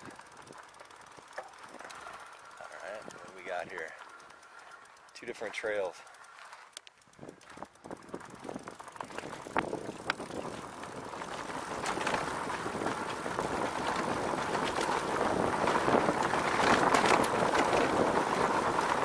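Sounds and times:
bike knocking and rattling: 0.0s - 19.0s
tyres and wind rushing: 6.8s - 19.0s.

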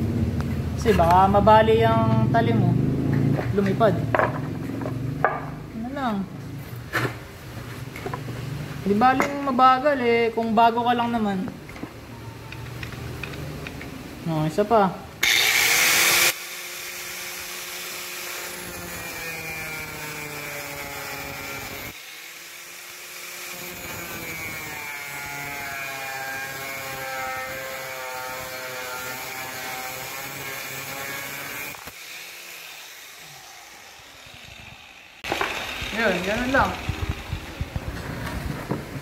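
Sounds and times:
angle grinder cutting steel: 15.2s - 37.9s
grinder motor spinning down: 15.2s - 38.6s.

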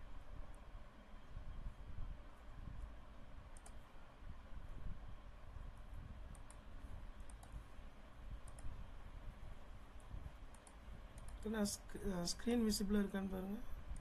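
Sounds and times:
low background rumble: 0.0s - 14.0s
computer mouse clicking: 3.5s - 3.8s, 6.3s - 7.6s, 8.4s - 8.8s, 10.0s - 11.6s.

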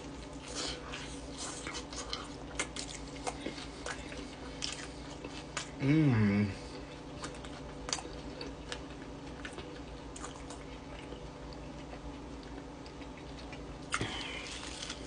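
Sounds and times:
crunchy bite into sandwich: 13.9s - 15.0s.

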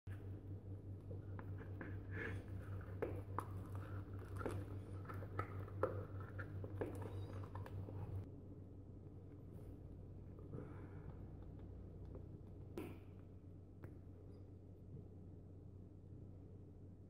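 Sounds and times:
steady low hum: 0.1s - 17.0s.

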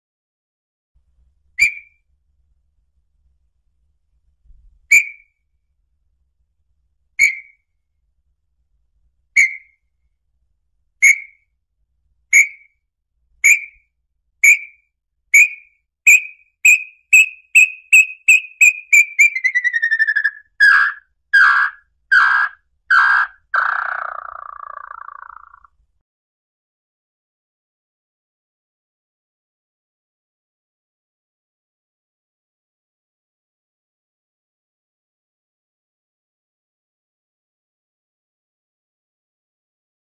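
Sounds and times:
bird whistled notes and trill: 1.6s - 2.0s, 4.9s - 5.4s, 7.2s - 7.6s, 9.4s - 9.8s, 11.0s - 11.4s, 12.3s - 12.8s, 13.4s - 25.7s.

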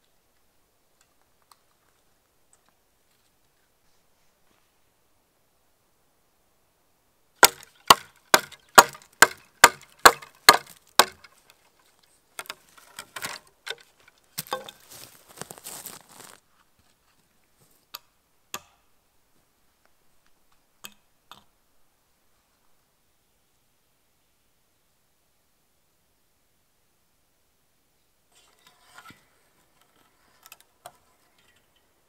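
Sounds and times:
axe striking wood: 7.4s - 11.3s, 14.4s - 14.8s
wood crackling and rustling: 7.4s - 17.8s.

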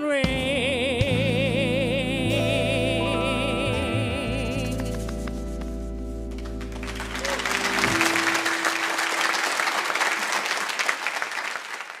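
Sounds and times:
live band final chord: 0.2s - 9.6s
audience applause: 6.4s - 12.0s.

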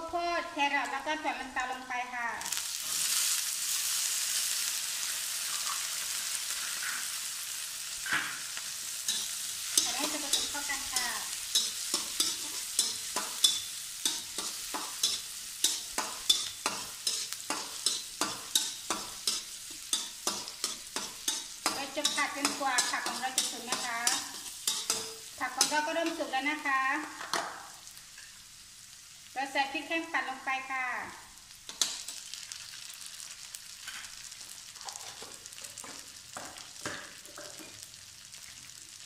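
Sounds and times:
vegetables sizzling in hot oil: 0.1s - 39.0s
metal spatula scraping a wok: 8.9s - 26.4s.

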